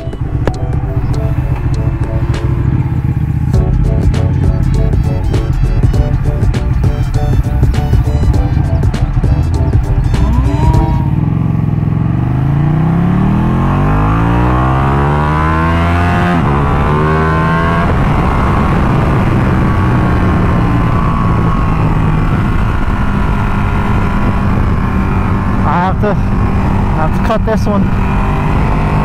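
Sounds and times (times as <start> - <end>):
motorcycle engine accelerating: 0.0 - 29.0
wind rush over microphone: 15.5 - 29.0.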